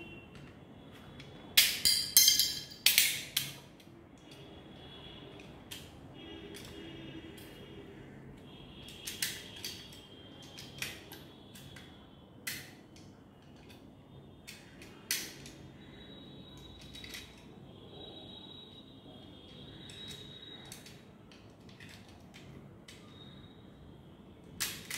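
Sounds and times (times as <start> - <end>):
sharp clicks of hard parts: 1.2 - 4.4, 14.4 - 15.6, 24.5 - 24.9.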